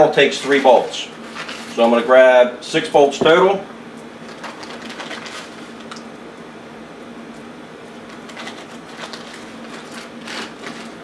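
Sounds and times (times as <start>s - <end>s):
plastic bag rustling: 0.0s - 2.1s, 4.2s - 6.0s, 8.1s - 11.0s
steady low hum: 0.0s - 11.0s.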